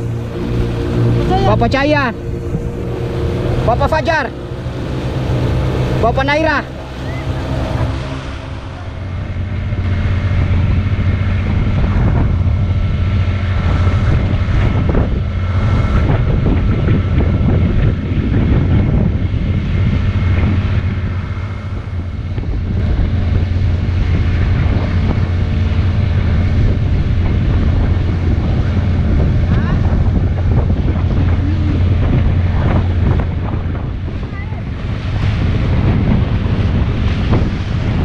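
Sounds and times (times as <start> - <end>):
boat motor running: 0.0 - 38.0
water rushing past hull: 0.0 - 38.0
wind buffeting microphone: 0.0 - 38.0.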